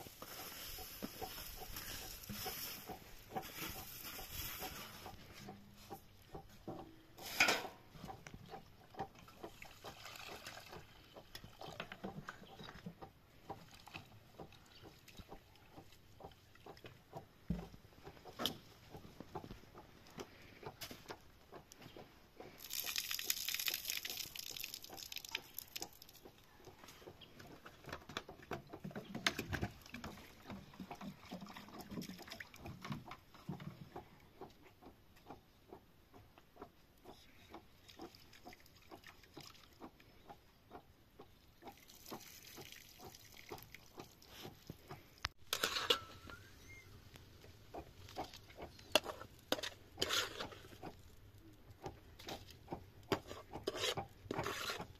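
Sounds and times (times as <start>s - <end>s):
water sloshing and splashing: 8.6s - 19.8s, 27.6s - 34.0s, 37.5s - 40.8s, 41.5s - 46.1s
water pouring: 22.6s - 26.2s.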